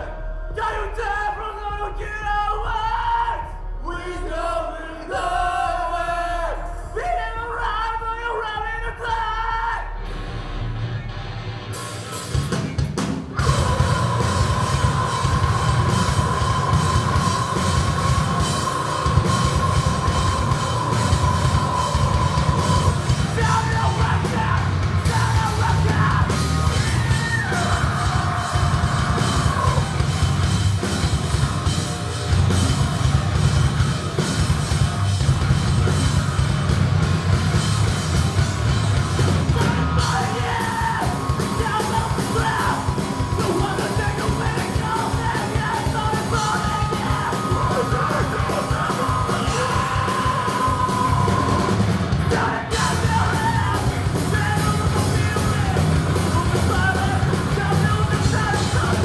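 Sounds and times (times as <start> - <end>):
bass guitar: 0.0 - 59.0
drum kit: 10.0 - 59.0
electric guitars: 10.0 - 59.0
yelled vocals: 13.2 - 59.0.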